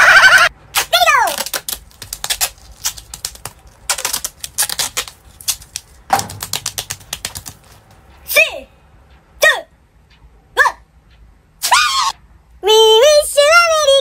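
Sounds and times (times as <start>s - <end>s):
duct tape ripping: 0.7s - 8.0s.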